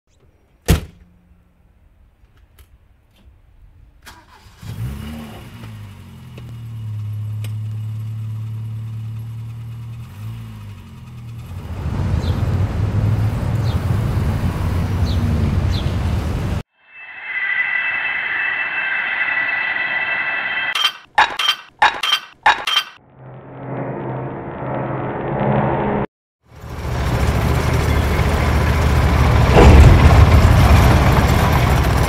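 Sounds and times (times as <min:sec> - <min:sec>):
car engine starting and revving: 0:04.1 - 0:16.6.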